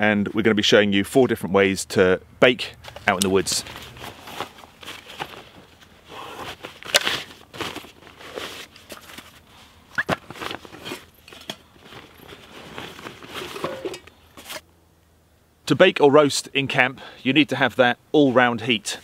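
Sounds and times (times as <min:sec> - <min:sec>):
backpack fabric rustling: 0:02.8 - 0:14.6.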